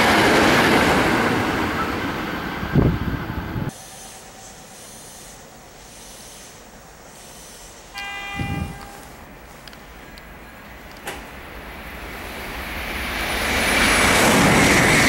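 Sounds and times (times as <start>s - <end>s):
passing train rumble: 0.0s - 15.0s
train electric horn toot: 7.9s - 9.3s.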